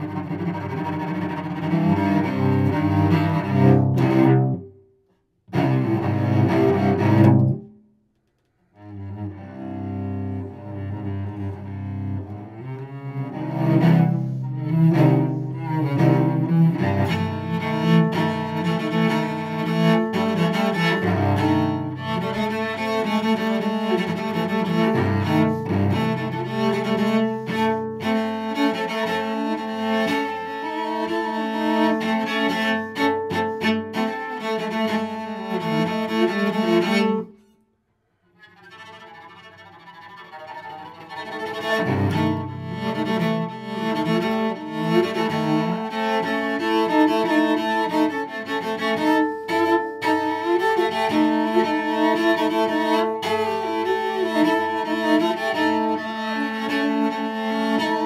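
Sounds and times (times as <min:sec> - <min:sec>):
solo cello bowed: 0:00.0 - 0:04.8, 0:05.5 - 0:07.7, 0:08.4 - 0:37.6, 0:38.2 - 0:58.0.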